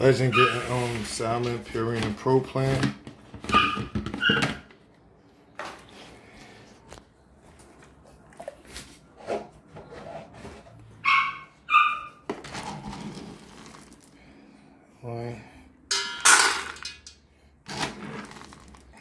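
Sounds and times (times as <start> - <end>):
dog yipping: 0.3 - 0.8, 3.5 - 4.7, 11.0 - 12.2.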